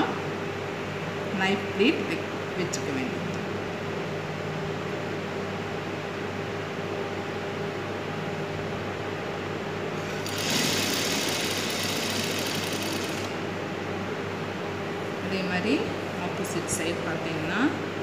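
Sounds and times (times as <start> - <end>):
steady low hum: 0.0 - 18.0
sewing machine stitching: 10.2 - 13.3.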